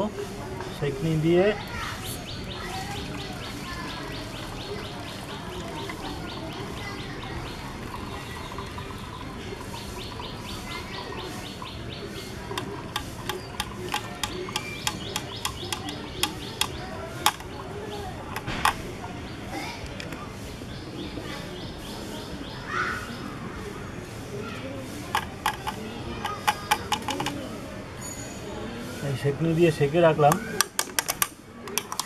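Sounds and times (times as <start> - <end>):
water trickling into bowl: 0.7 - 18.8
bird chirping: 1.4 - 19.4
strainer tapping against metal: 12.5 - 17.5.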